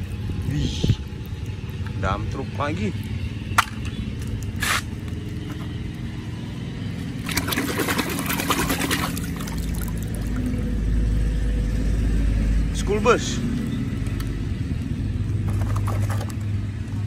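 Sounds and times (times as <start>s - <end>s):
low steady hum: 0.0s - 17.0s
toy splashing through muddy water: 7.1s - 10.7s.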